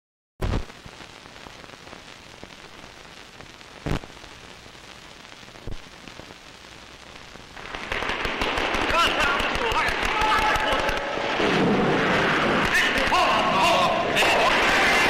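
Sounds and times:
film soundtrack hiss and crackle: 0.4 - 15.0
loud pops: 0.4 - 15.0
loud noisy sound: 7.0 - 15.0.

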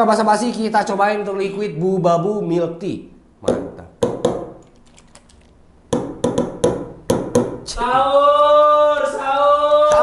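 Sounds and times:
plastic bottle clicking and shaking: 4.6 - 5.6.

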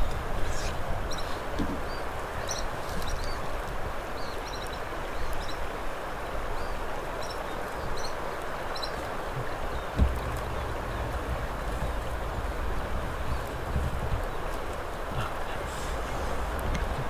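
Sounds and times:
steady rushing hiss: 0.0 - 17.0
wind rumble on microphone: 0.0 - 17.0
small birds chirping: 0.4 - 5.7, 6.5 - 17.0
dull thump: 9.9 - 14.3.

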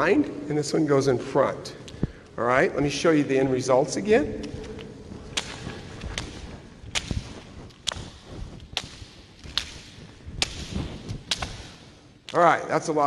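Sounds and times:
jump rope slapping floor: 4.2 - 12.4.

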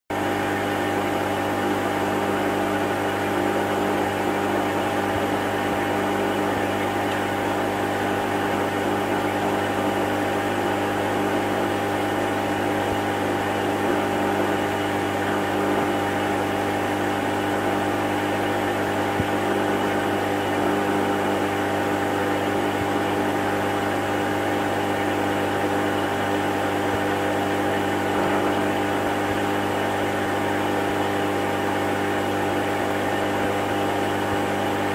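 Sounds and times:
aquarium pump humming: 0.1 - 34.9.

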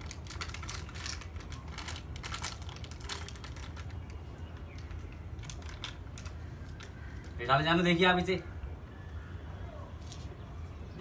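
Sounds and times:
plastic packet crinkling: 0.0 - 7.4.

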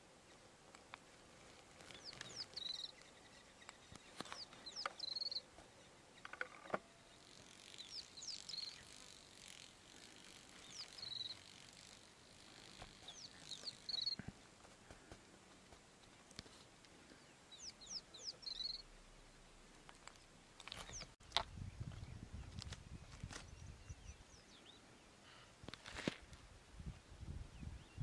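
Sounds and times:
small bird singing: 1.6 - 14.3, 17.1 - 19.0, 19.8 - 25.2.

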